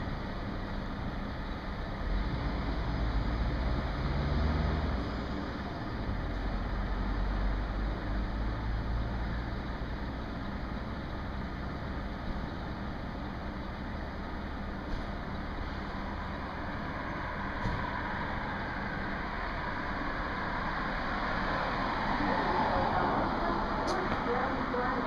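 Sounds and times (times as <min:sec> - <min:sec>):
train machinery humming: 0:05.3 - 0:25.0.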